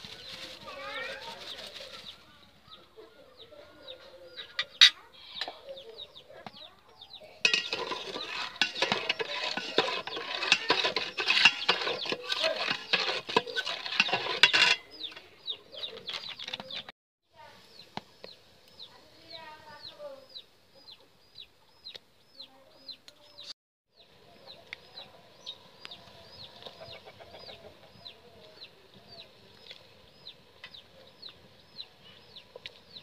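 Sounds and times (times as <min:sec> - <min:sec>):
metal spatula scraping a pot: 0:07.4 - 0:15.4.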